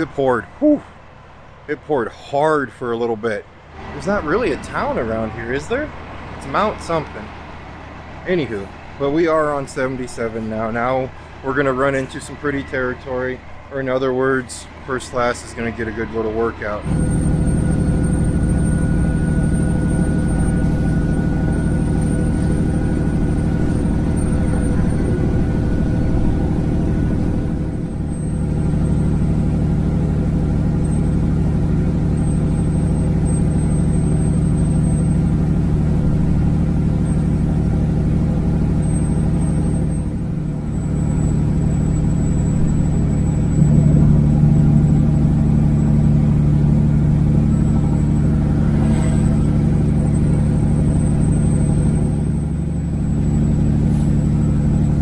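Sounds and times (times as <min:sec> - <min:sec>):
truck diesel engine under load: 0:15.9 - 0:55.0.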